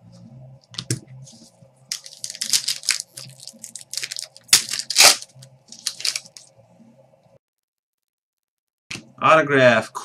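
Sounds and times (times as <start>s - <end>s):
foil wrappers crinkling and tearing: 1.9s - 6.5s.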